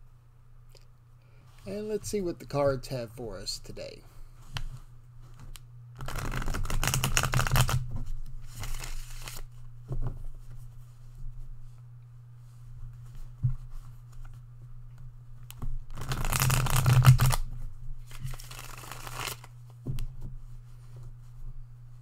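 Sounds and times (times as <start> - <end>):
cards riffle-shuffled: 4.6 - 9.5, 15.9 - 19.6.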